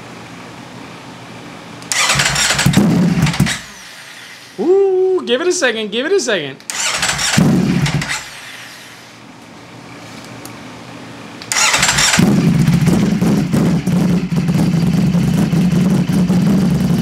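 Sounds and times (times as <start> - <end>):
motorcycle engine starting: 1.8 - 3.8, 6.7 - 8.4, 11.4 - 17.0
loud motorcycle engine idling: 2.0 - 3.7, 11.6 - 17.0.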